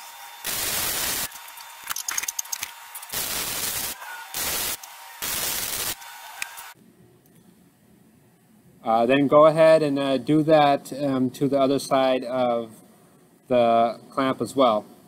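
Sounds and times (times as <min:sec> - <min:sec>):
welding arc crackling: 0:00.0 - 0:06.8
sharp welding pops: 0:00.4 - 0:06.8.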